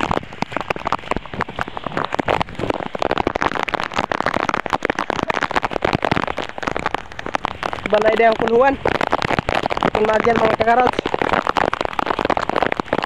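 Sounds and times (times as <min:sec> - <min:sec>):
rain drops crackling: 0:00.0 - 0:13.0.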